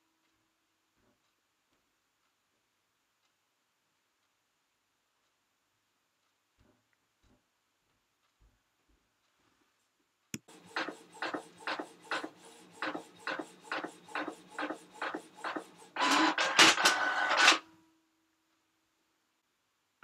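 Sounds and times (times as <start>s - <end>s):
printer click: 10.5s - 17.6s
printer whine: 10.5s - 17.6s
printer printing: 10.5s - 17.7s.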